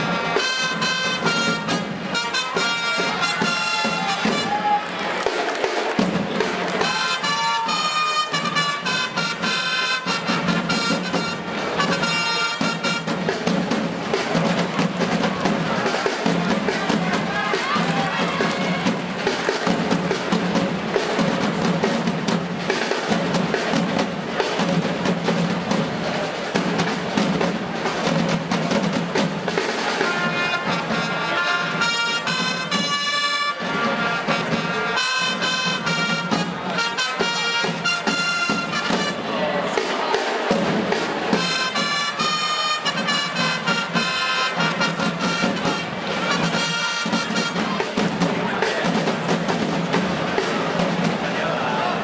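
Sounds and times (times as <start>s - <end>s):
trumpets playing fanfare: 0.0s - 13.4s, 15.3s - 19.4s, 29.8s - 40.5s, 41.1s - 48.0s
rolling snare drums: 0.0s - 52.0s.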